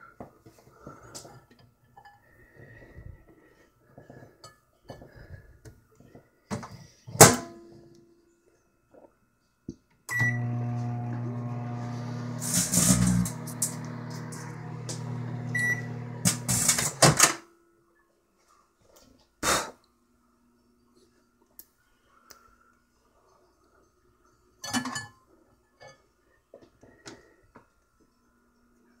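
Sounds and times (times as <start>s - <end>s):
microwave oven humming: 10.1s - 17.0s.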